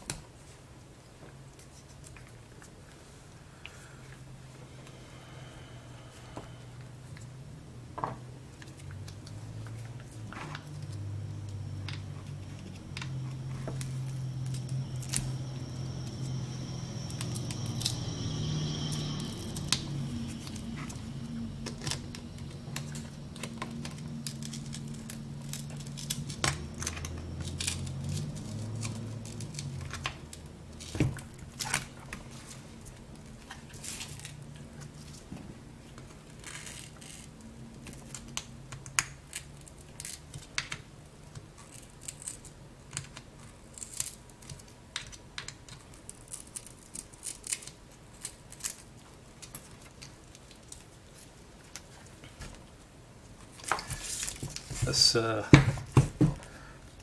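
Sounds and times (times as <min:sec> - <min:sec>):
low hum: 0:02.9 - 0:38.7.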